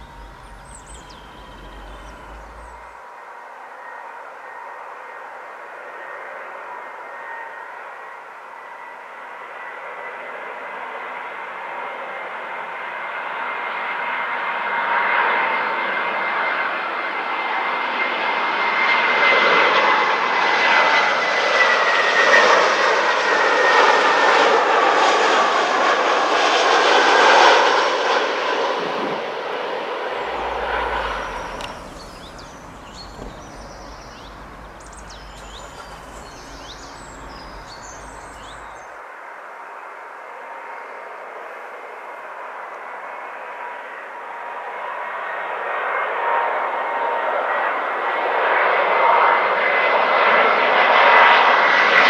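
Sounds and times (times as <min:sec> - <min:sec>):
low rumble: 0:00.0 - 0:03.0, 0:30.0 - 0:38.9
birds chirping: 0:00.0 - 0:04.6, 0:30.0 - 0:39.0
jet airliner passing overhead: 0:00.0 - 0:52.0.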